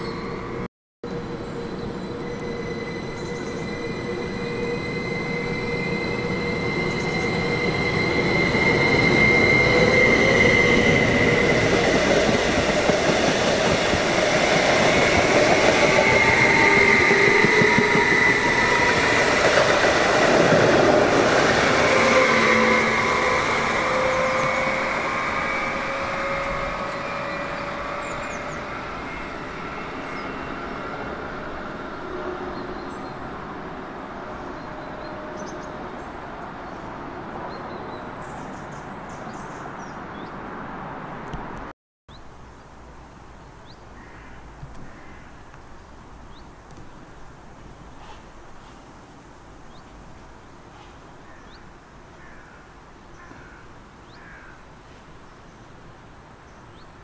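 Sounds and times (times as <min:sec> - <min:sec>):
wheel-on-rail noise: 0:01.1 - 0:31.2
train traction motors whining: 0:01.1 - 0:31.6.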